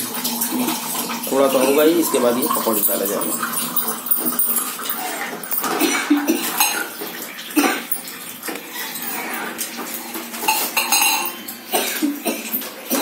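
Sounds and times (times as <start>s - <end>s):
ladle scraping and clinking in pan: 10.4s - 11.4s.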